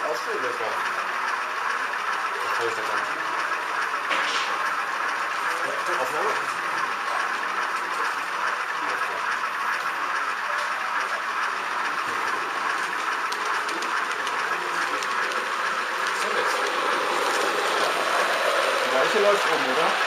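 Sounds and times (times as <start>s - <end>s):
model train whirring on track: 0.0s - 20.0s.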